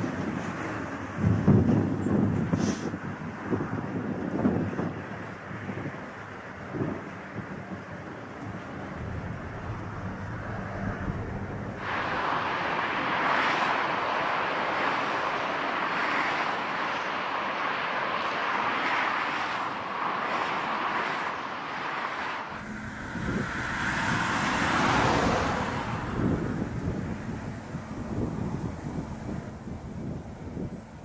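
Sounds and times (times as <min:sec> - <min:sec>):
wind buffeting microphone: 0:00.0 - 0:17.0, 0:19.7 - 0:31.0
aircraft engine noise: 0:00.0 - 0:31.0
heavy low rumble: 0:07.4 - 0:12.5, 0:22.5 - 0:30.9.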